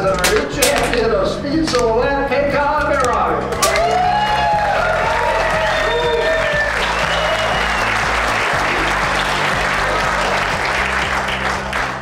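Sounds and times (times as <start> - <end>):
background music: 0.0 - 12.0
audience applauding: 3.6 - 12.0.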